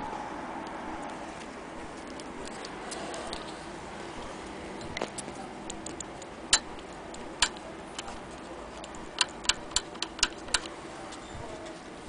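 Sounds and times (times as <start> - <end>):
sewing machine handwheel clicks: 9.1 - 10.7.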